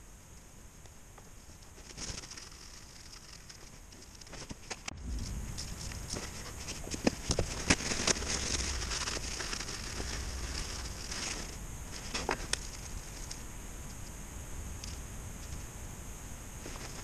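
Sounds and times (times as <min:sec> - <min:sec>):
gloves rustling: 0:01.3 - 0:14.1.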